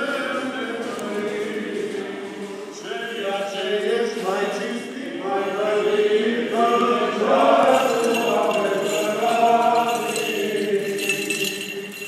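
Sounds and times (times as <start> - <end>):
voices chanting slow held notes: 0.0 - 12.0
high metallic jingling: 6.7 - 12.0.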